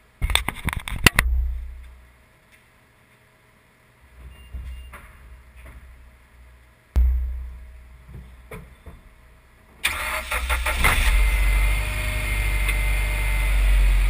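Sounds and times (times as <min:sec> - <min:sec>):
heavy thump: 0:07.0 - 0:09.1
car starter cranking: 0:09.8 - 0:11.4.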